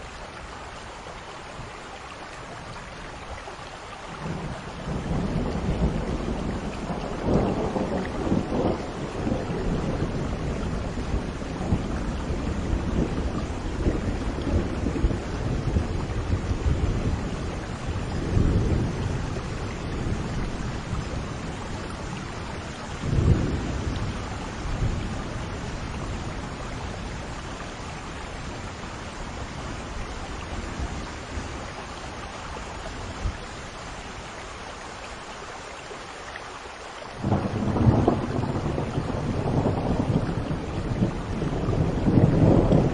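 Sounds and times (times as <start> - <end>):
steady rain: 0.0 - 42.9
rolling thunder: 4.2 - 27.5, 37.2 - 42.9
sharp thunderclap: 23.0 - 25.1, 37.2 - 42.9.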